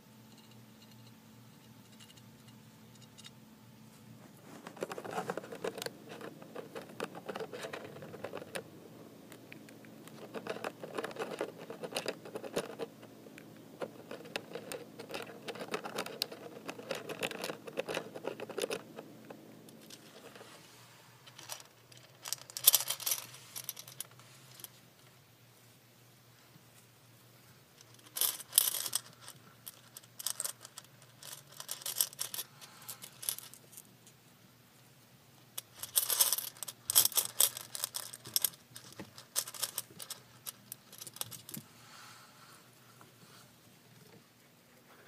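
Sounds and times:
hamster gnawing and crunching: 4.3s - 8.7s, 9.3s - 20.4s.

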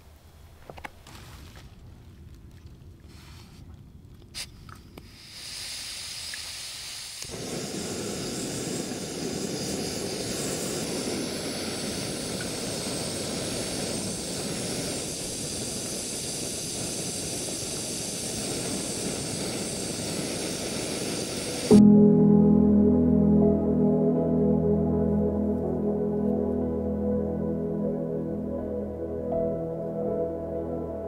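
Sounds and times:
thin hiss of gas: 4.4s - 21.8s
stove burner flame rushing: 5.0s - 21.8s.

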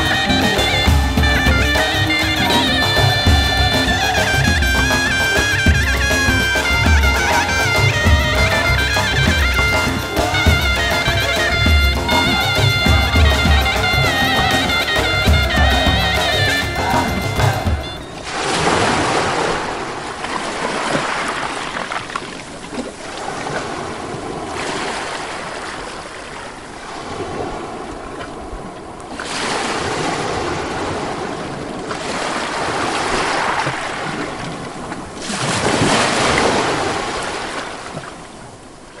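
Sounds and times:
wind: 0.0s - 39.0s
waves washing against rocks: 14.8s - 38.6s.

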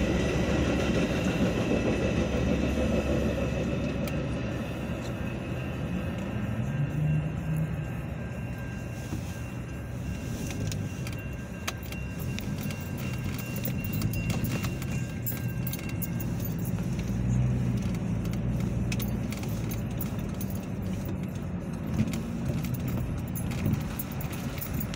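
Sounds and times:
car engine and tyres hum: 0.0s - 24.9s
light jingling clicks: 10.2s - 24.9s.

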